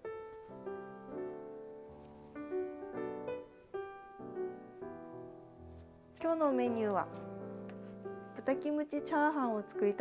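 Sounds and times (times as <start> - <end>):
light keyboard melody: 0.0 - 10.0.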